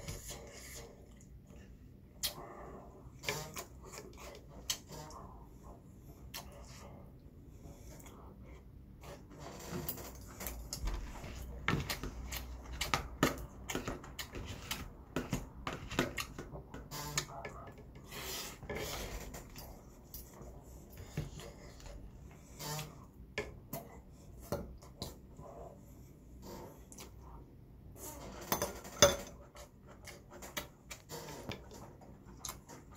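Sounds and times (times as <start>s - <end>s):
soft chewing: 0.0s - 9.4s, 10.1s - 27.5s, 29.4s - 32.9s.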